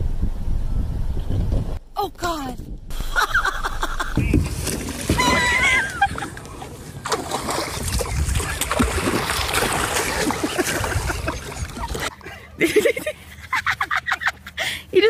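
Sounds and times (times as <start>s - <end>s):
water splashing and sloshing: 3.8s - 12.4s.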